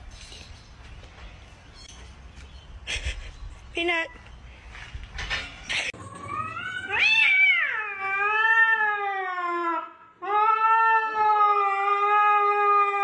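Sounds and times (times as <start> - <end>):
cat yowling: 6.2 - 13.0.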